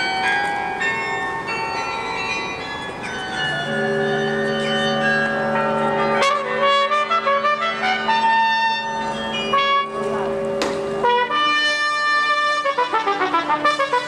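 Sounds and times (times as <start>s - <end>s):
church carillon bells: 0.0s - 14.0s
trumpet melody: 5.1s - 14.0s.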